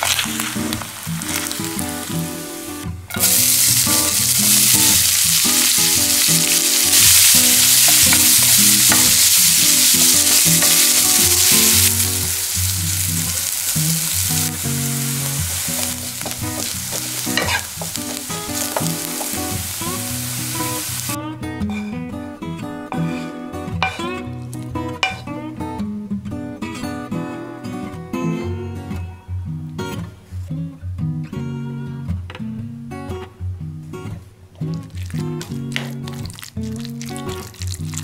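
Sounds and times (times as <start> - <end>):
food sizzling in frying pan: 0.0 - 21.2, 34.7 - 38.0.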